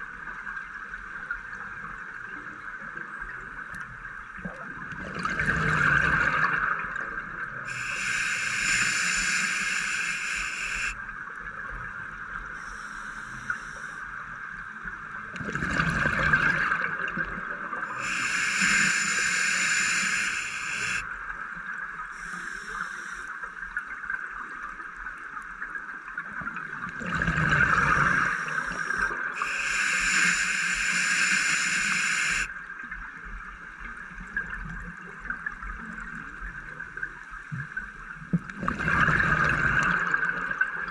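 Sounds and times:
exhaled bubbles underwater: 4.3 - 12.7, 14.8 - 22.2, 23.6 - 33.0, 33.8 - 40.9
hissing regulator inhalation: 7.7 - 11.0, 12.6 - 14.0, 17.9 - 21.1, 22.1 - 23.4, 27.8 - 32.5
steady hum: 7.7 - 11.0, 17.9 - 21.2, 22.2 - 23.4, 27.9 - 32.6.

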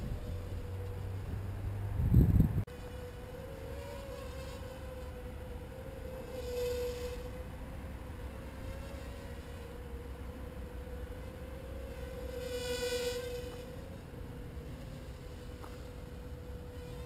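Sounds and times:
tiny drone buzzing: 0.0 - 17.0.

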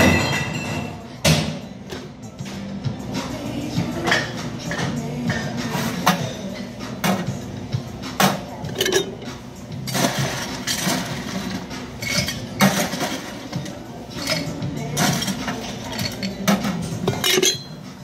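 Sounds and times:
glasses clinking on metal counter: 0.0 - 1.2, 8.3 - 9.3, 12.0 - 17.8.

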